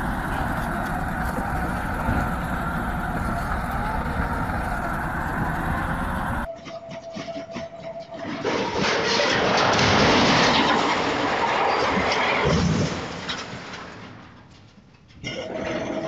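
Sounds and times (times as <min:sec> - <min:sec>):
heavy vehicle engine running: 0:00.0 - 0:06.5.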